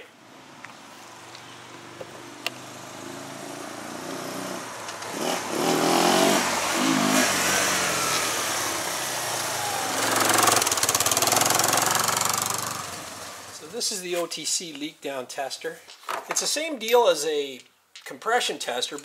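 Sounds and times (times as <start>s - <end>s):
atv engine passing by: 0.1s - 13.7s.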